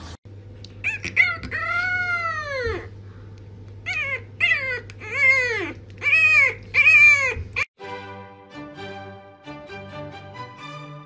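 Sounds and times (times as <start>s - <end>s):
puppy yelp: 0.8s - 2.9s, 3.8s - 7.7s
puppy howling: 0.8s - 3.0s, 3.8s - 7.7s.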